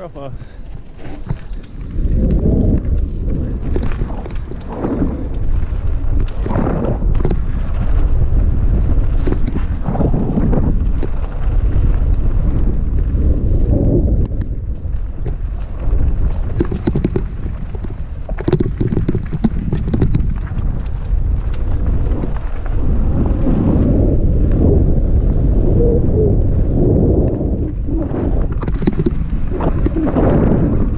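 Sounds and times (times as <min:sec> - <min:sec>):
wind buffeting microphone: 0:00.0 - 0:30.9
rattling clicks and knocks: 0:16.5 - 0:21.6.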